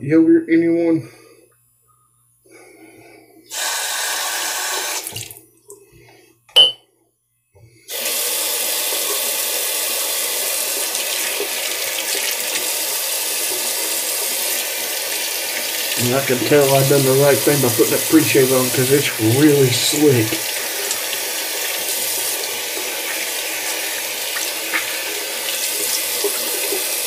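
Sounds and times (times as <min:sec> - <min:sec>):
sharp clink: 0:06.5 - 0:06.8.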